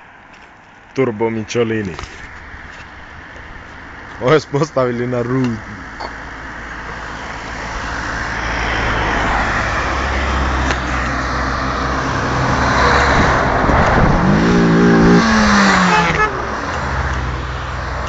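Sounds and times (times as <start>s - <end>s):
car passing by: 6.9s - 18.0s.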